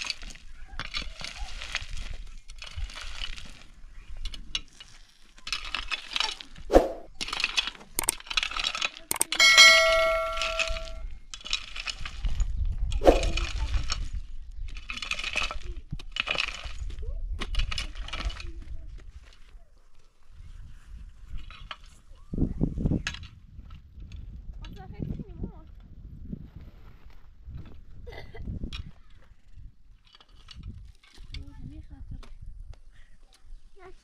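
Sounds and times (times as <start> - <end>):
hoe clanging on stone: 9.1 - 11.0
hoe chopping stony ground: 13.0 - 13.6.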